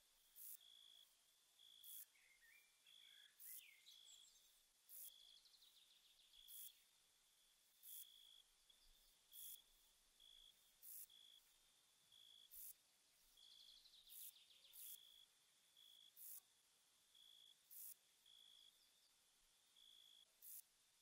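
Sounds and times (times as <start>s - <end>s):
bush-cricket chirps: 0.2s - 20.7s
faint bird twitters: 1.6s - 6.8s, 12.1s - 16.4s.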